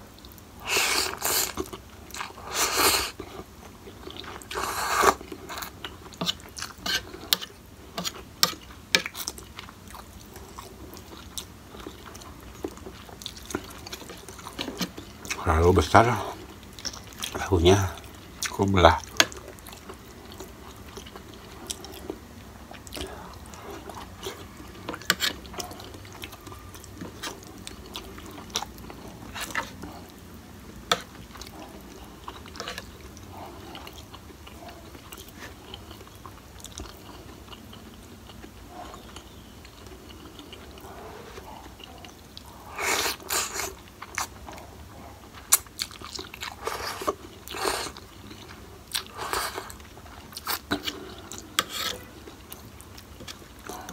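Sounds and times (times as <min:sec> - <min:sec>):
person chewing noodles: 0:00.1 - 0:53.9
slurping noodles: 0:00.6 - 0:03.2, 0:04.4 - 0:05.7, 0:46.5 - 0:48.0.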